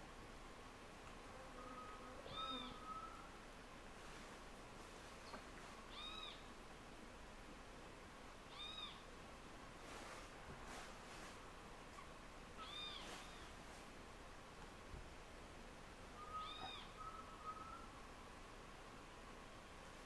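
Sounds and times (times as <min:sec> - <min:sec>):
faint animal calls: 0:01.5 - 0:03.4, 0:05.9 - 0:06.5, 0:08.5 - 0:09.1, 0:11.9 - 0:13.6, 0:16.1 - 0:18.0.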